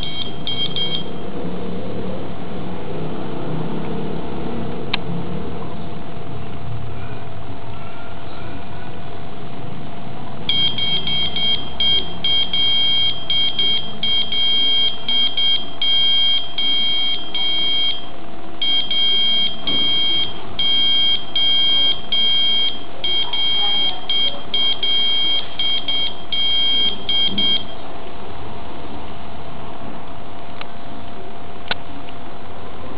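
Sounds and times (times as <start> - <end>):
buzzer beeping morse code: 0.0 - 1.1, 10.5 - 27.8.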